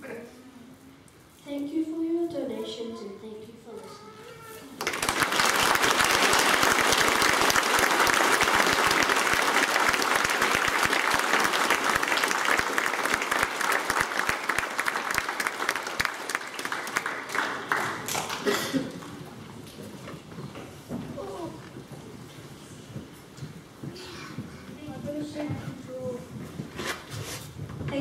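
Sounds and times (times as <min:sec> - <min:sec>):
children applauding: 0:04.8 - 0:19.4.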